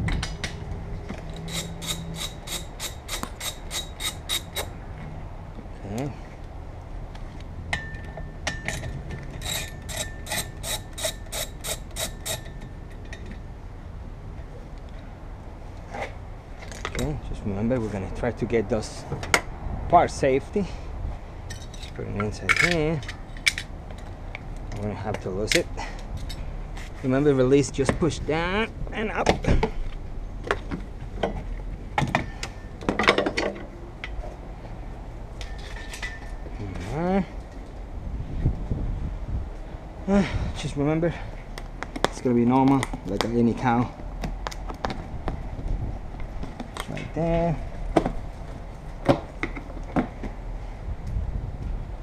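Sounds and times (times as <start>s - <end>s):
socket ratchet clicking: 1.4s - 4.7s, 9.4s - 12.5s.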